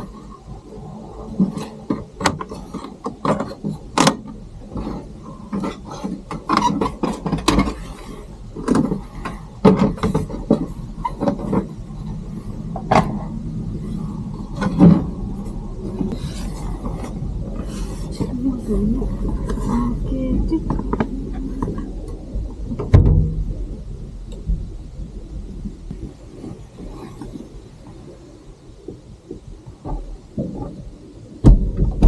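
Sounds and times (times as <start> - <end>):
low steady hum: 0.0 - 32.0
objects knocking and clattering: 8.6 - 11.8.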